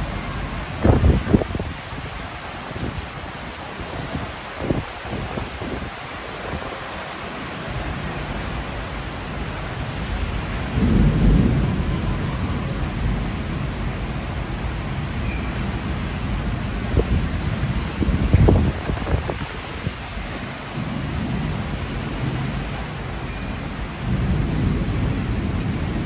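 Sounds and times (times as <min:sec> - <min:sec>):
low rumble of thunder: 0:00.0 - 0:02.2, 0:09.9 - 0:26.0
heavy rain pouring: 0:00.0 - 0:26.0.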